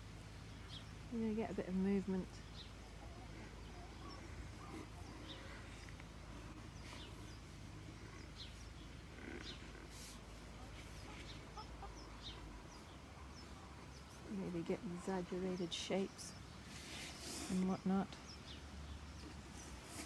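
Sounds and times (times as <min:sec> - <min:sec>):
hens clucking: 0:02.8 - 0:12.9.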